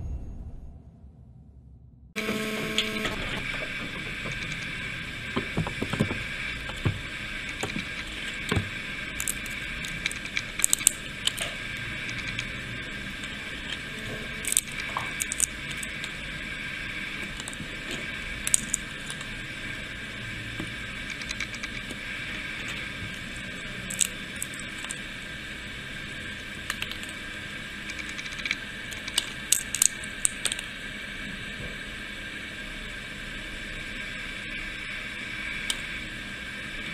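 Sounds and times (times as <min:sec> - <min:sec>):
seed shells cracking: 0:07.8 - 0:11.5, 0:14.4 - 0:16.2, 0:17.2 - 0:17.7, 0:18.4 - 0:19.4, 0:23.8 - 0:25.0, 0:26.7 - 0:27.2, 0:27.9 - 0:30.7.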